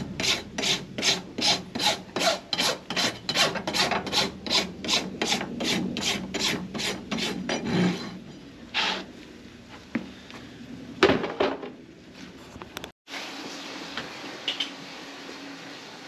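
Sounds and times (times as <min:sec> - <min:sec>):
hoof rasp scraping hoof: 0:00.0 - 0:09.9.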